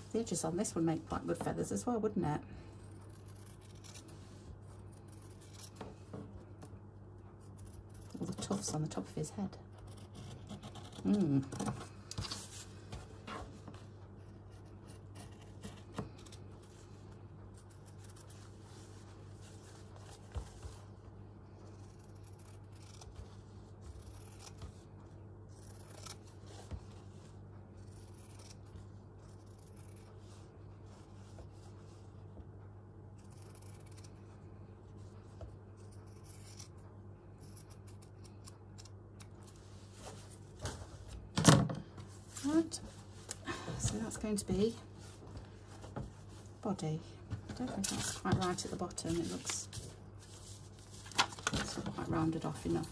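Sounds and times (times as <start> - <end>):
low steady hum: 0.0 - 52.9
scissors snipping fabric: 2.9 - 4.2, 4.8 - 5.9, 7.4 - 11.9, 14.4 - 16.4, 21.6 - 23.3, 23.9 - 24.8, 25.5 - 26.4, 27.8 - 30.1, 33.2 - 34.2, 35.8 - 36.8.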